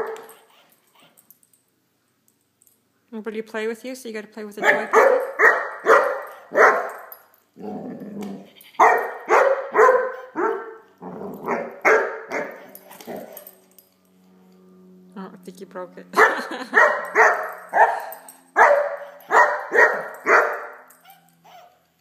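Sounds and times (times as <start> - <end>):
puppy barking: 0.0 - 0.5, 4.6 - 7.1, 8.8 - 13.4, 16.2 - 21.7
low rough growl: 7.6 - 8.7, 11.0 - 11.6.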